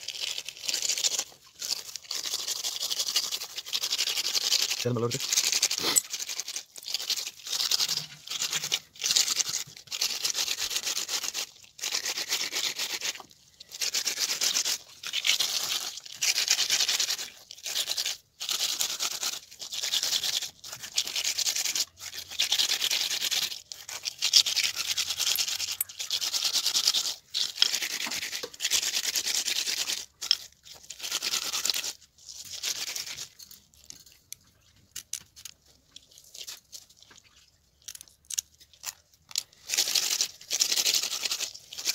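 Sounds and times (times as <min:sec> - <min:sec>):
fish scrubbed against stone: 0:00.0 - 0:34.3, 0:34.9 - 0:41.9.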